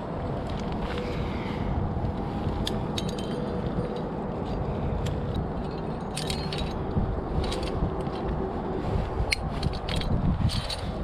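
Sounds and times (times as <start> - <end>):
wind on microphone: 0.0 - 11.0
metal carabiners clinking: 2.3 - 11.0.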